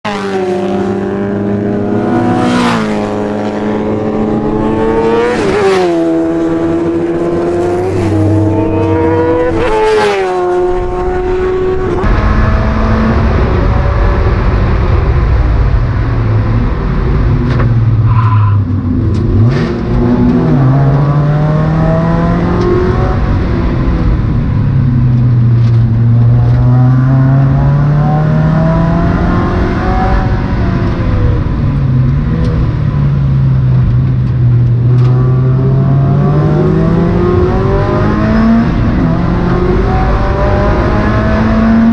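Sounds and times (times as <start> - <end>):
wind and road rush: 0.0 - 41.9
race car engine revving: 0.1 - 24.8, 33.5 - 41.9.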